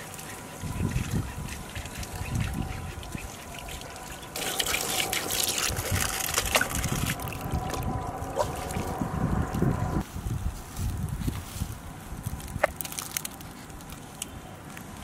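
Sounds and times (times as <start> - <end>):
water trickling and splashing: 0.0 - 10.0.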